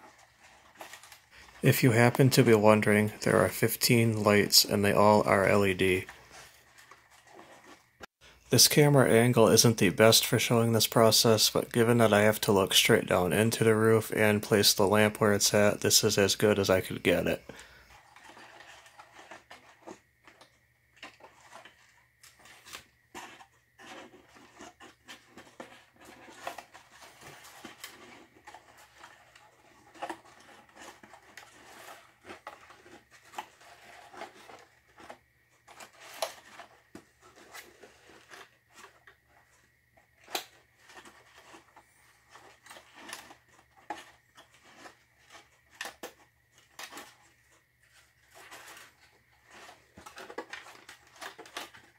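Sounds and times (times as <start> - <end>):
fingers handling thin wires: 18.0 - 51.9.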